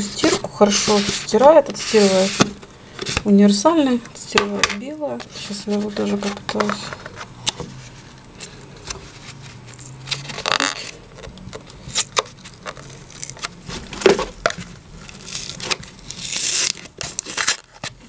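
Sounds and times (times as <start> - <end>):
tearing and crinkling: 9.1 - 18.0.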